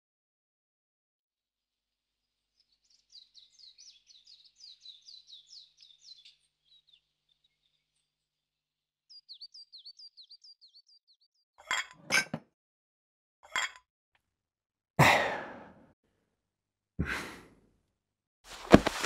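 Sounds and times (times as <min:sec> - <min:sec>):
small bird chirping: 0:02.2 - 0:11.5
tableware clinking: 0:11.6 - 0:12.5, 0:13.5 - 0:13.8
breathy sighs: 0:15.0 - 0:15.9, 0:17.0 - 0:17.6.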